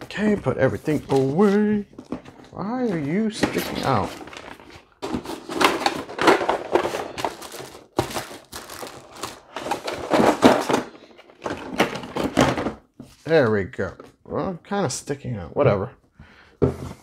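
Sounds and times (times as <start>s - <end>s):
plastic wrap crinkling: 5.9s - 9.8s.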